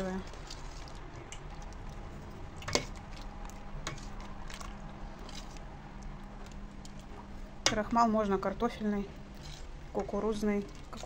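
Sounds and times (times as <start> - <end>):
steady low hum: 0.0 - 11.0
spoon stirring thick stew: 0.2 - 8.0.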